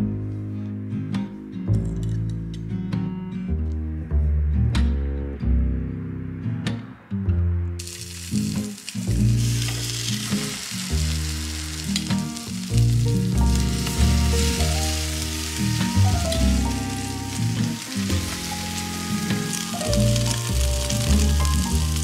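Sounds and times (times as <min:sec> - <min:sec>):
background music with bass line: 0:00.0 - 0:22.0
bread sizzling in a pan: 0:07.8 - 0:22.0.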